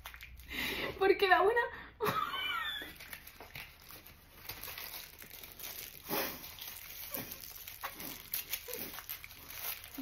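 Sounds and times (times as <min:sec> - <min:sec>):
paper wrapper crinkling: 0:02.6 - 0:10.0.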